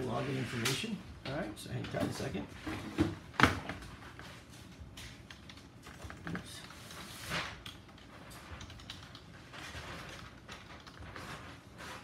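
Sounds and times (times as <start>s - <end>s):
keyboard typing: 5.0s - 7.0s, 7.6s - 11.2s.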